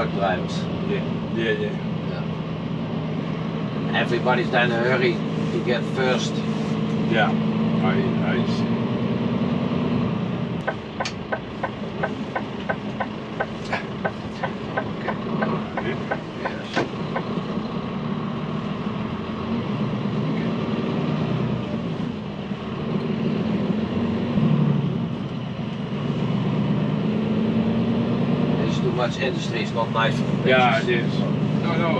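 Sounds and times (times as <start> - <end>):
truck diesel engine running: 10.0 - 31.9.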